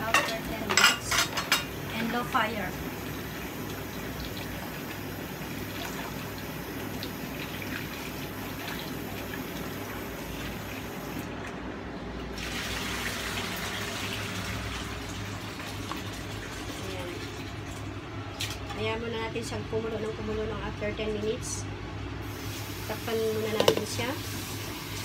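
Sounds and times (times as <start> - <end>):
stew bubbling in a pot: 1.7 - 11.2.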